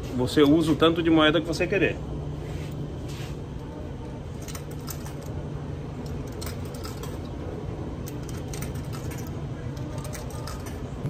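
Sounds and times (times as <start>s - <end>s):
dryers humming: 0.0s - 11.0s
coins clicking into slot: 4.3s - 5.4s, 6.0s - 7.3s, 8.0s - 10.9s.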